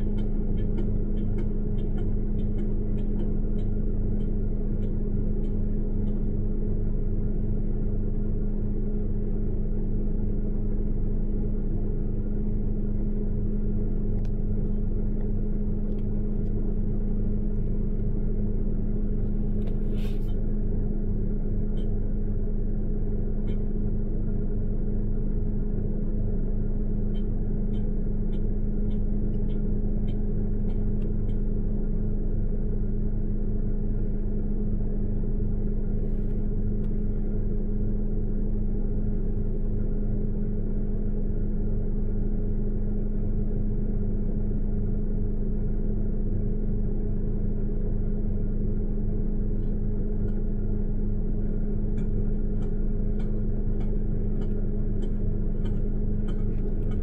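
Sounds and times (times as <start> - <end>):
vehicle engine idling: 0.0 - 57.0
light ticks: 0.1 - 6.2, 21.8 - 22.0, 27.1 - 31.4, 52.0 - 57.0.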